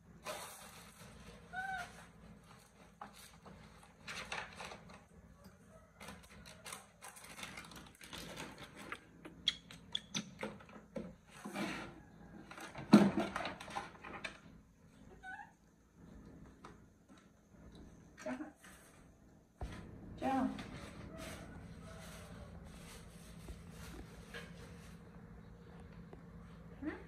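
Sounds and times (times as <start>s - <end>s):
household items rustling and clattering: 0.0s - 5.3s, 6.0s - 9.4s, 10.3s - 14.7s, 18.3s - 26.4s.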